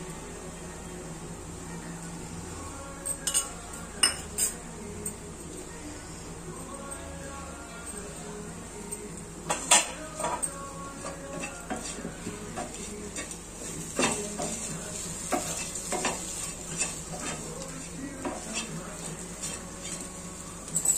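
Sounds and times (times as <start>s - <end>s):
faint sizzle: 0.0s - 20.9s
spatula scraping a frying pan: 11.3s - 20.2s.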